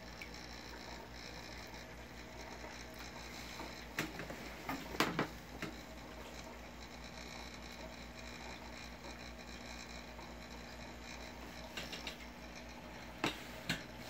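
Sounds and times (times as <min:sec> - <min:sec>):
aquarium equipment humming: 0:00.0 - 0:14.0
sharp clicks and knocks: 0:11.7 - 0:12.3.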